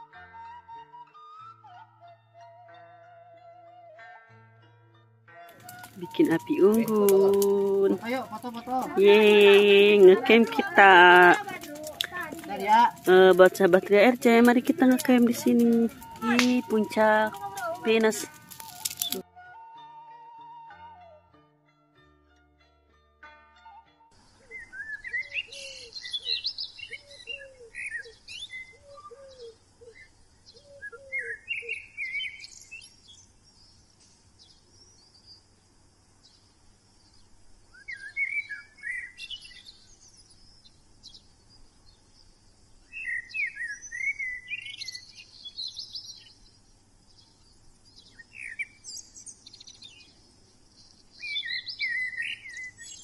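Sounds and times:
birds chirping and twittering: 5.5 - 19.2, 24.2 - 53.0
lower repeated bird call: 5.6 - 19.2, 24.4 - 32.7.

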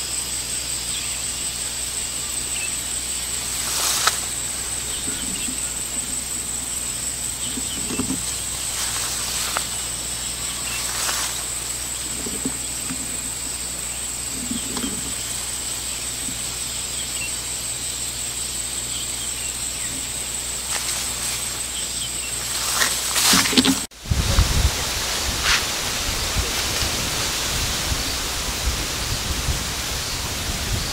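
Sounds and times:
insect drone: 0.0 - 30.9
soft rustles: 3.4 - 13.5, 14.3 - 15.5, 20.6 - 21.8, 22.4 - 23.9.

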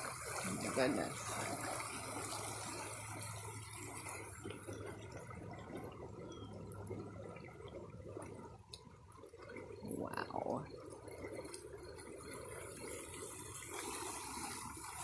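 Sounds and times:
floodwater rushing in creek: 0.0 - 15.0.

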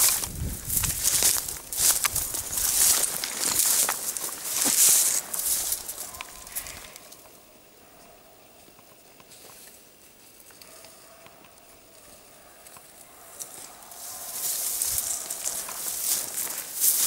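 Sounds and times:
footsteps through dry grass: 0.0 - 7.4, 12.0 - 17.0.

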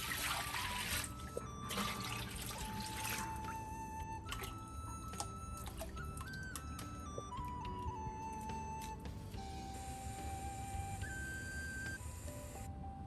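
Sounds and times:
water poured into a wok: 0.0 - 3.4
faint background music: 0.0 - 13.0.

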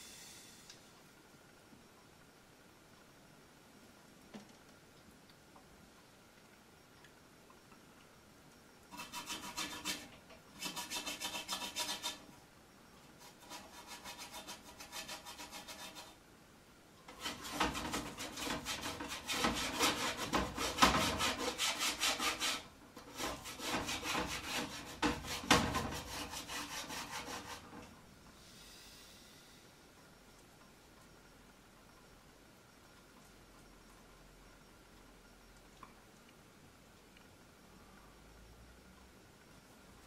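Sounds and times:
paintbrush scrubbing: 9.0 - 12.2, 13.2 - 16.2.

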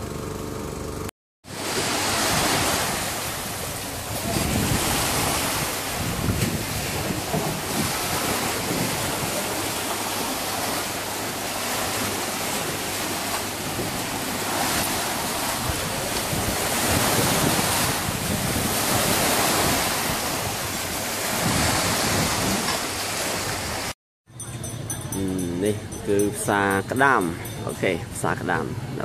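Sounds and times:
sea waves washing against concrete: 1.5 - 24.0
wind buffeting microphone: 2.1 - 9.9, 12.4 - 29.0.

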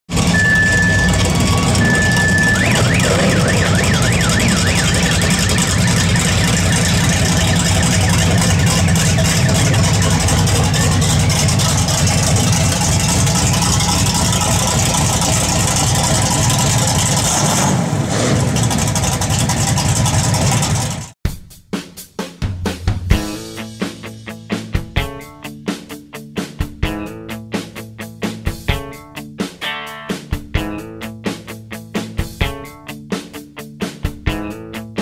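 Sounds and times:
truck engine rumbling: 0.1 - 21.2
short high beeps: 0.3 - 6.0.

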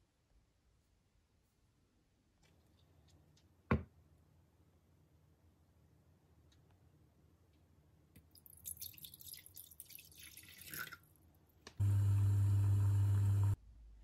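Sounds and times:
water pouring into a saucepan: 8.4 - 11.1
loud low buzz: 11.8 - 13.6.

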